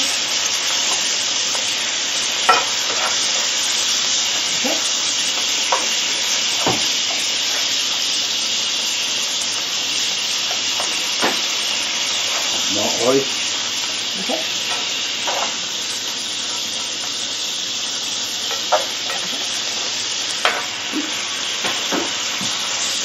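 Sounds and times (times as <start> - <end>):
food sizzling in a frying pan: 0.0 - 23.0
spatula scraping and tapping pan: 2.5 - 3.5.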